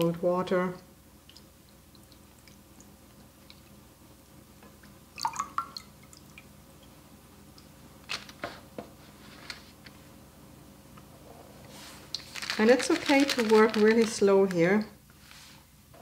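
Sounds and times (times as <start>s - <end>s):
liquid dripping: 0.7s - 3.8s, 4.6s - 7.8s.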